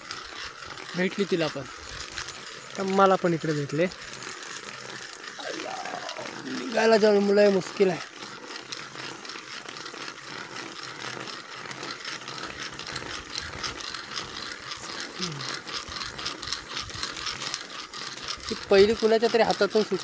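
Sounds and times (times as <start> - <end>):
dry leaves and soil crackling: 0.9 - 7.8.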